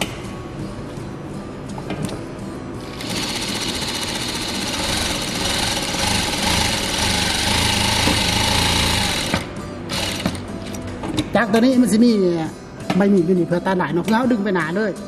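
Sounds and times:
sewing machine stitching: 3.0s - 10.4s.

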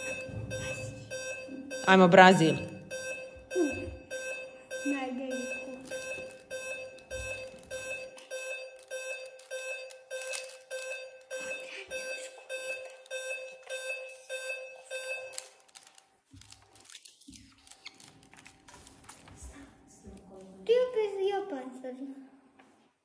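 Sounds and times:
electronic beeps: 0.0s - 15.4s.

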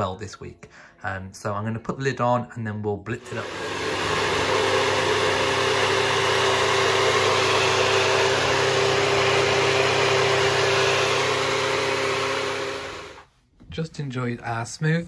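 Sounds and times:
blender motor whirring: 3.2s - 13.3s.

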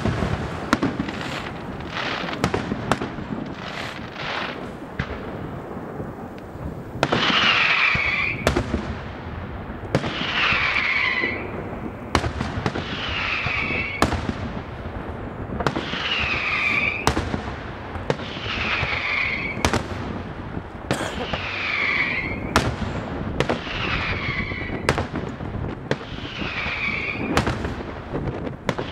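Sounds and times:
firework shells bursting: 0.0s - 8.9s
falling whistle: 16.2s - 17.1s, 19.0s - 19.6s, 21.4s - 22.6s.

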